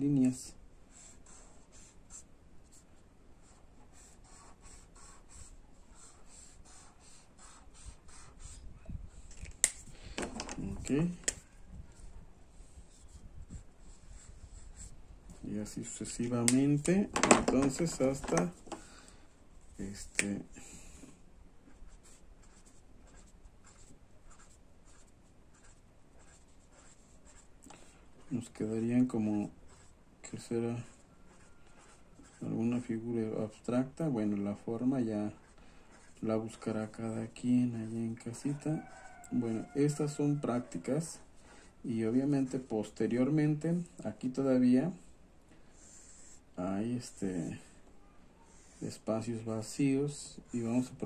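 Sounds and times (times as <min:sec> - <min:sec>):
marker scratching on paper: 0:00.9 - 0:16.9, 0:17.5 - 0:18.8, 0:21.6 - 0:33.6, 0:34.2 - 0:37.2, 0:45.7 - 0:47.8, 0:48.5 - 0:51.0.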